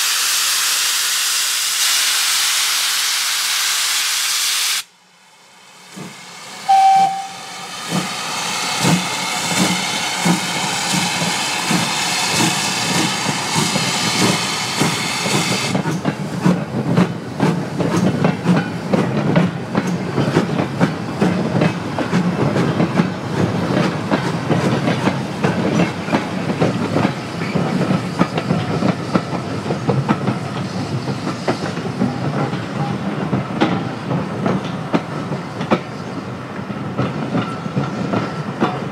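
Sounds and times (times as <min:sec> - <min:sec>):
locomotive steam hiss: 0:00.0 - 0:36.6
locomotive whistle: 0:06.6 - 0:07.6
train wheels clicking over rail joints: 0:07.8 - 0:38.9.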